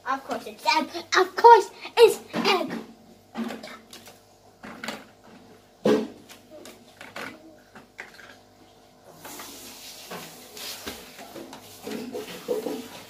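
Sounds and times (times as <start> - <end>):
plastic toys clicking and knocking: 6.3 - 8.3.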